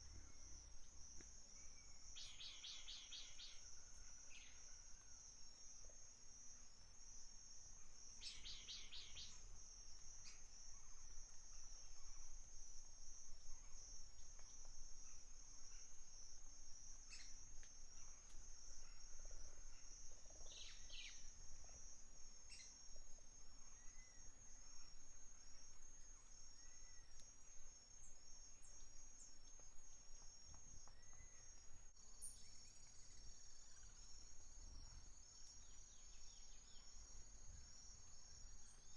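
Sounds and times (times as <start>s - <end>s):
bird chirps: 1.6s - 3.6s, 8.2s - 9.5s.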